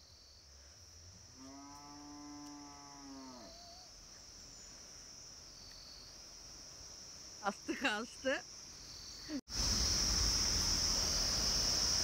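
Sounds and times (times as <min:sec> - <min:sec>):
insects chirring: 0:00.0 - 0:12.0
long animal call: 0:03.0 - 0:03.9.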